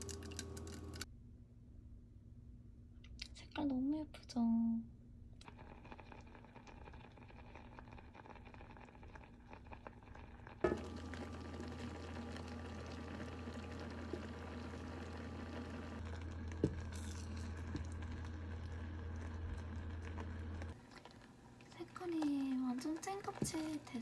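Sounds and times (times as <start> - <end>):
jam bubbling and popping in pot: 5.4 - 24.0
steady low hum: 10.6 - 24.0.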